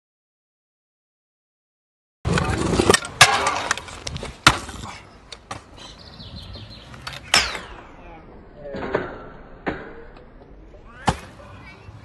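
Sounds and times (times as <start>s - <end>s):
scooter wheels rolling on concrete: 2.3s - 7.4s.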